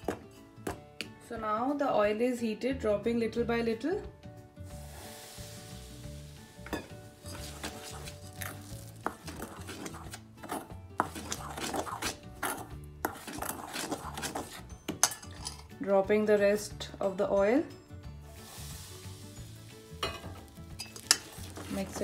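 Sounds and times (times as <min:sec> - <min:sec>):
metal spoon scraping steel bowl: 0:07.2 - 0:15.7, 0:20.7 - 0:22.0.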